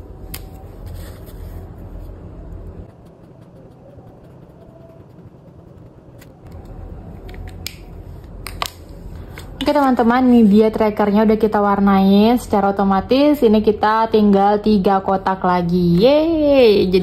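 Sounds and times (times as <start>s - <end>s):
low background rumble: 0.0s - 17.0s
marker rubbing on paper: 2.8s - 6.3s.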